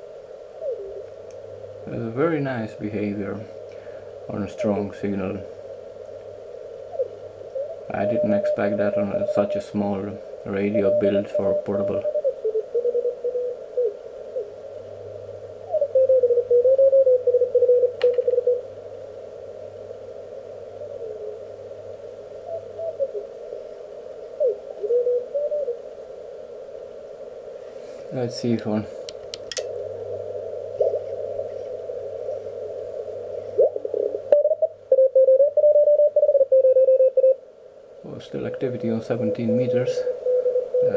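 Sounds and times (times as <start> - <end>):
radio band noise hiss: 0.0 - 16.6, 17.9 - 35.0, 37.2 - 40.9
sharp click: 29.1 - 29.7
morse code tone: 34.4 - 37.4.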